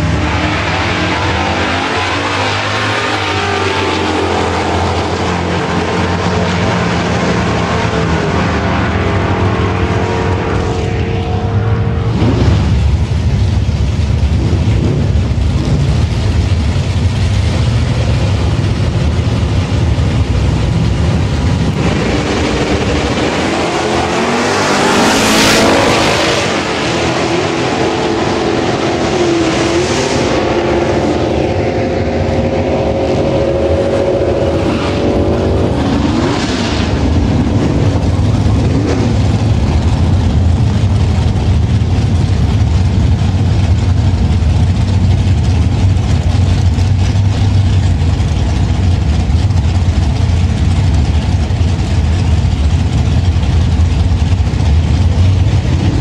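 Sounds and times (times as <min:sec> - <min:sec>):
loud car engines running: 0:00.0 - 0:56.0.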